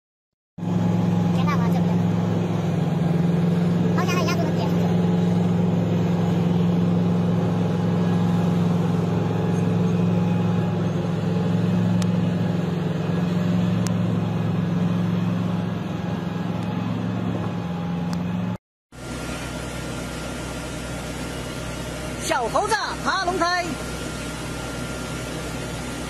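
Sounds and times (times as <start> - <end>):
diesel truck engine droning: 0.6 - 26.0.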